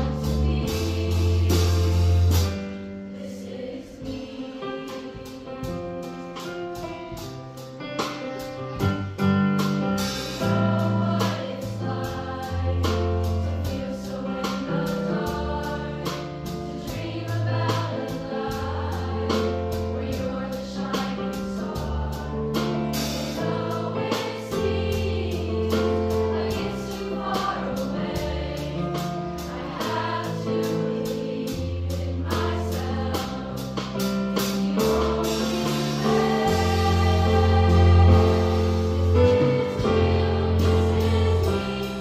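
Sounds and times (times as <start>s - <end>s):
choir singing in harmony: 0.0s - 7.3s, 9.8s - 42.0s.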